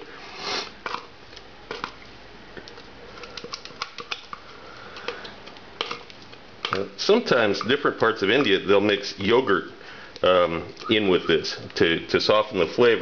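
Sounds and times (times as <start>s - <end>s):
spoon scraping paste: 0.0s - 1.1s.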